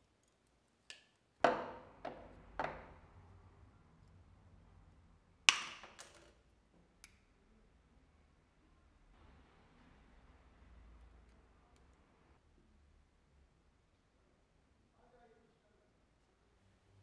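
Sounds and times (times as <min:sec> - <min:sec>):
metallic tool clicks and knocks: 0:05.5 - 0:06.4.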